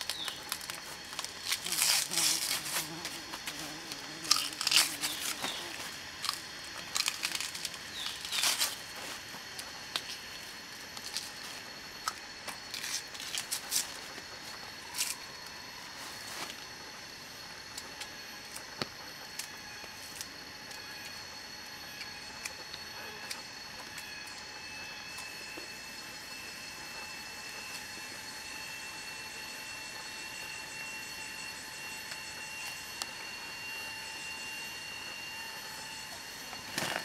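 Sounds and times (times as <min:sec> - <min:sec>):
dry plant material crackling: 0:00.0 - 0:10.1.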